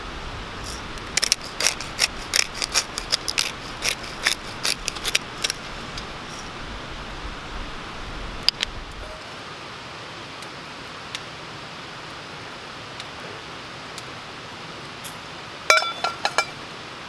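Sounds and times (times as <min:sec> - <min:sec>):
pepper grinder ratcheting clicks: 0:01.0 - 0:05.6.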